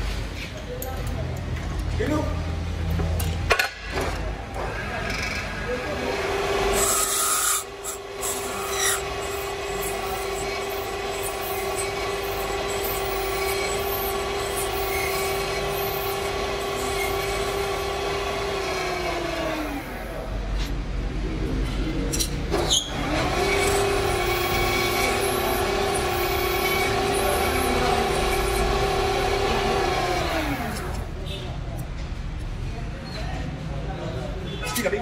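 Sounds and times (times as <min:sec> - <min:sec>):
lathe winding down: 0:06.2 - 0:20.0, 0:22.9 - 0:31.0
metal lathe running: 0:06.2 - 0:20.0, 0:23.0 - 0:31.0.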